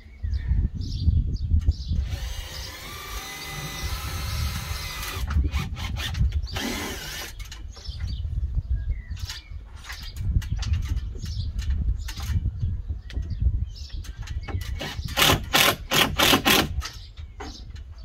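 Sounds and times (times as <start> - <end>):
cordless drill driving screws: 2.0 - 7.5, 14.8 - 16.8.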